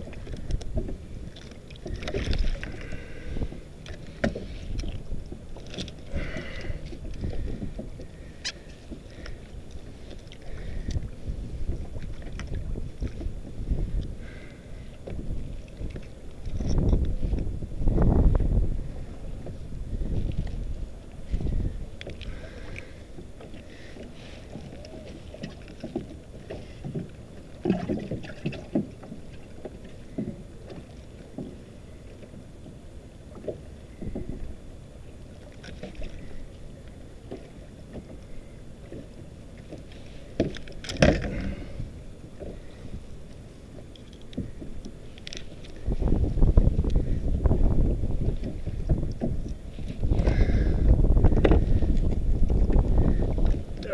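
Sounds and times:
water lapping against kayak hull: 0.0 - 53.9.

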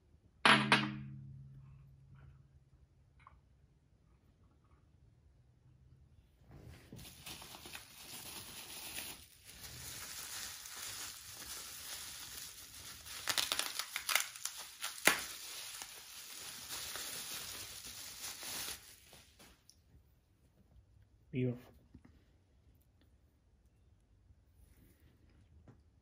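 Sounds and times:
packing material crinkling: 6.8 - 19.6.

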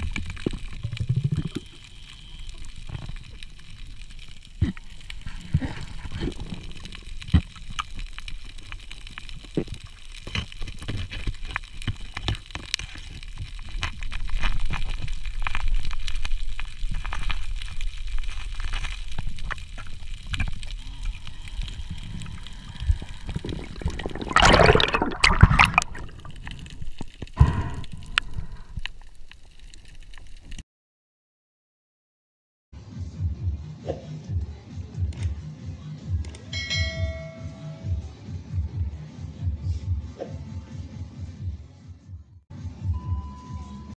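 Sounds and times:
low underwater rumble: 14.6 - 29.4
rushing bubbling burst: 20.3 - 28.7.

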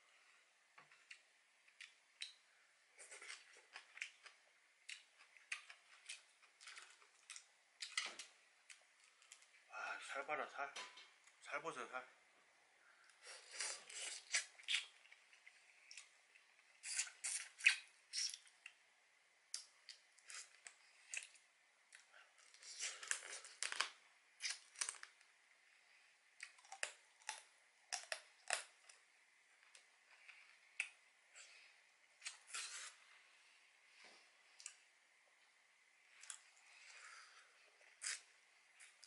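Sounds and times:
sucking and chewing crab: 13.1 - 18.8, 29.6 - 33.3.

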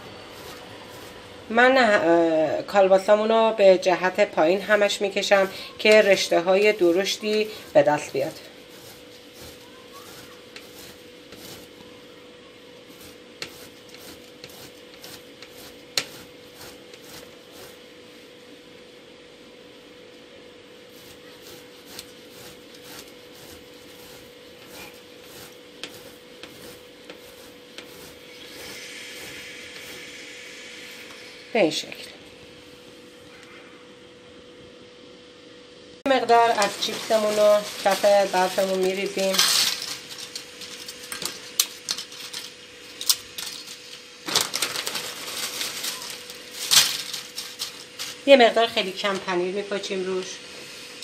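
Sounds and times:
sausage rasping on grater: 0.0 - 2.0, 4.4 - 17.9, 20.9 - 31.2
potato chips crackling in glass dish: 36.3 - 48.3.

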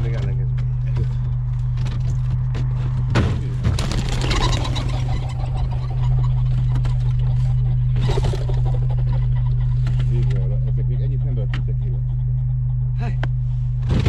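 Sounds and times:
idling engine hum: 0.0 - 13.8
plastic crates clattering: 3.6 - 5.3.

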